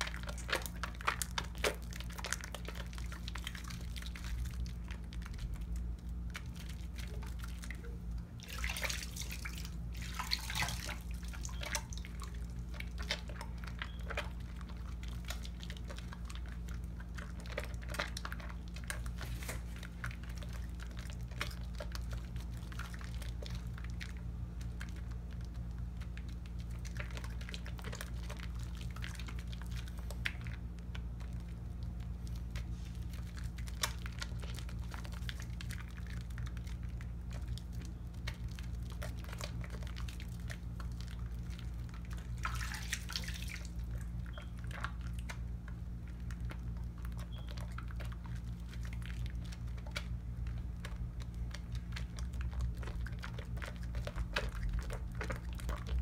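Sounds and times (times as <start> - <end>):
soapy lather squelching: 0.0 - 56.0
steady low hum: 0.0 - 56.0.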